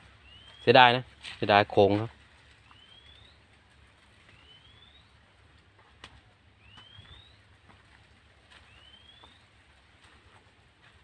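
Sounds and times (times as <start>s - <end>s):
bird whistled call: 0.2s - 0.7s, 2.7s - 3.4s, 4.3s - 5.2s, 6.6s - 7.5s, 8.6s - 9.5s.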